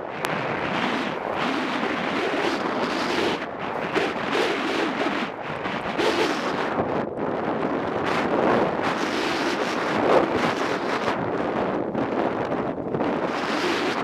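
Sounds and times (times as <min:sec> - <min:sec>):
wind on microphone: 0:00.0 - 0:14.0
skis scraping on snow: 0:00.3 - 0:06.7.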